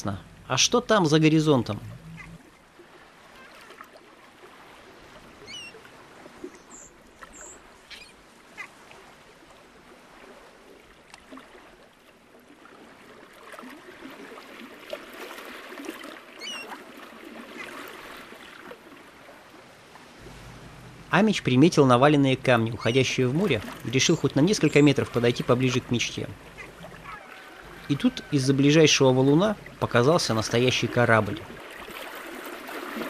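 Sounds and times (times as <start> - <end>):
water lapping among pebbles: 1.4 - 33.0
faint small clicks: 11.1 - 11.3.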